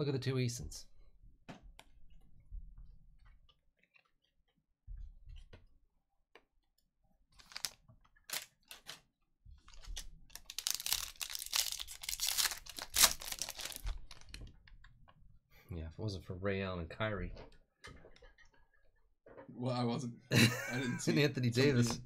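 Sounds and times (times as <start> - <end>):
foil pack crinkling and tearing: 7.4 - 8.9, 9.7 - 14.4.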